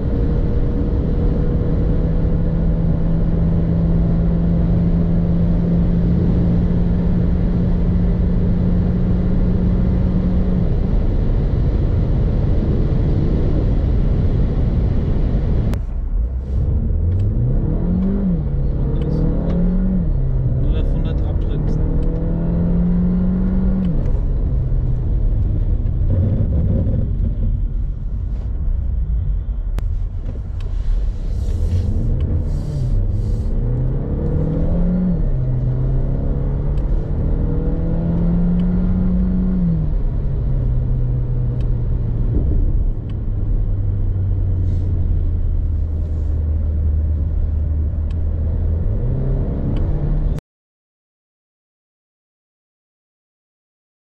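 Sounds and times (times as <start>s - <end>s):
car engine revving: 0.0s - 28.3s, 30.0s - 50.4s.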